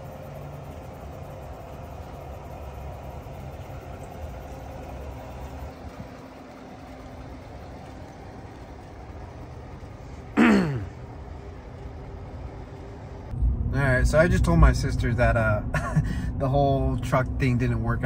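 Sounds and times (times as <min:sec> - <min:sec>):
truck engine idling: 0:00.0 - 0:18.0.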